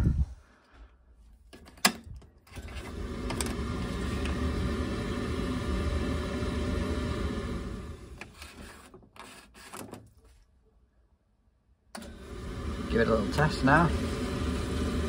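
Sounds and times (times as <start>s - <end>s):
boiler humming: 2.6s - 8.3s, 12.0s - 15.0s.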